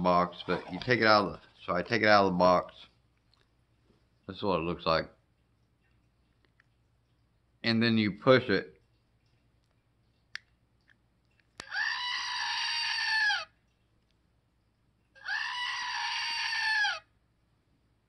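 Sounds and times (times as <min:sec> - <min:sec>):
recorded goat scream: 0:11.6 - 0:13.6, 0:15.2 - 0:17.1.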